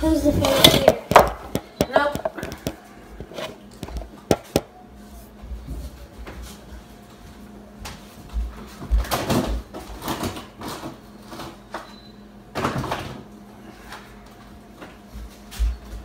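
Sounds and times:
kitchen knocks and bumps: 0.6s - 2.8s.

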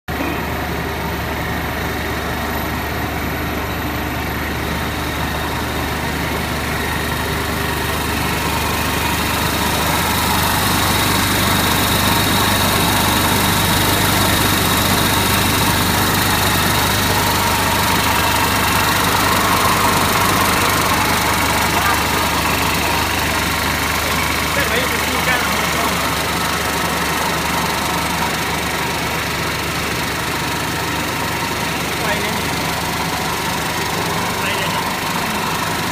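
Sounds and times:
production line machine drone: 0.1s - 35.9s.

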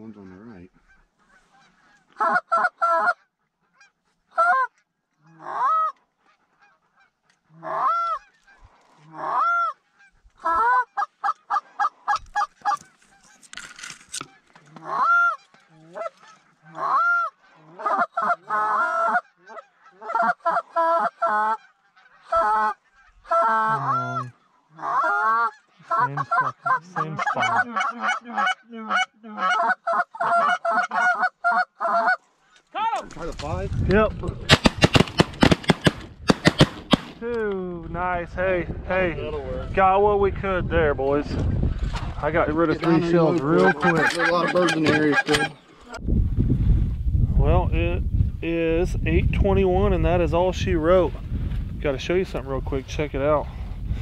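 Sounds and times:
goose call honks and clucks: 0.3s - 13.4s, 14.2s - 32.2s, 42.8s - 46.0s.

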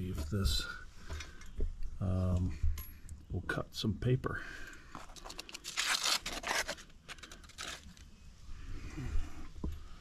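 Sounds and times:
paper rustling: 5.0s - 8.1s.

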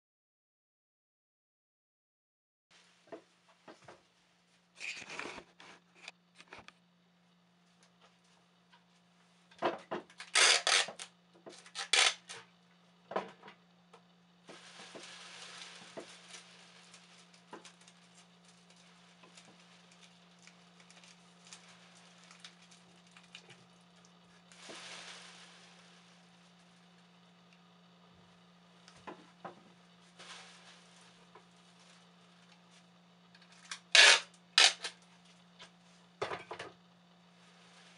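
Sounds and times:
soft hiss: 24.4s - 27.8s.

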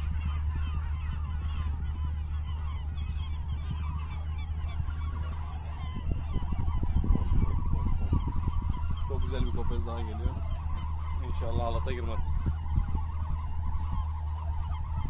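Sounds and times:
flock of gulls calling: 0.0s - 15.0s
steady low rumble: 0.0s - 15.0s.

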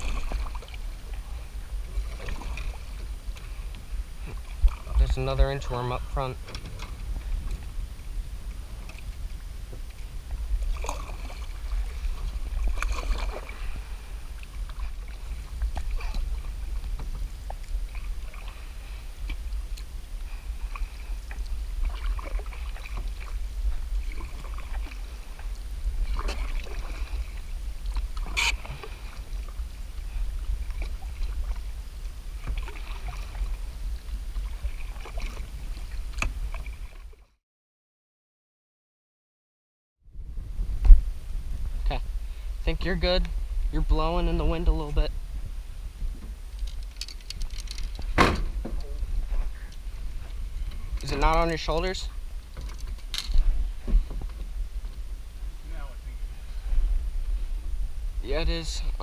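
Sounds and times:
water splashes and drips: 0.0s - 5.4s, 9.7s - 37.2s
steady low rumble: 0.0s - 37.0s, 40.1s - 59.0s
canoe paddle strokes in water: 0.0s - 37.3s, 40.1s - 59.0s.

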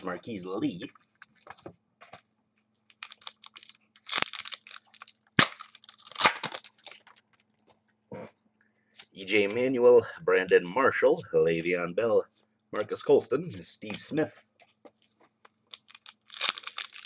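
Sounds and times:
wrapper crinkling: 2.8s - 7.6s, 15.5s - 17.0s.

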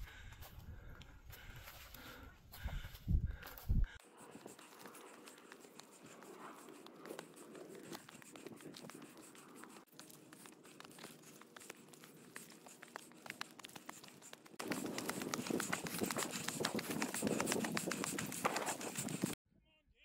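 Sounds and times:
footsteps crunching on trail: 0.0s - 19.4s
small ticks and crackles: 4.0s - 19.3s.

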